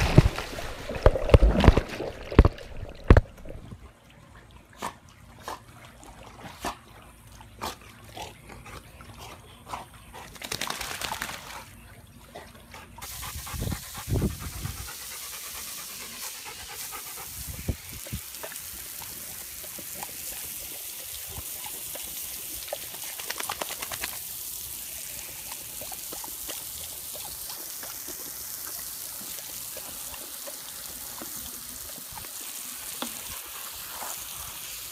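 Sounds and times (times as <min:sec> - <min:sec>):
water splashing: 0:00.0 - 0:03.8
dog panting: 0:12.3 - 0:17.5
water dripping off fur: 0:14.6 - 0:34.9.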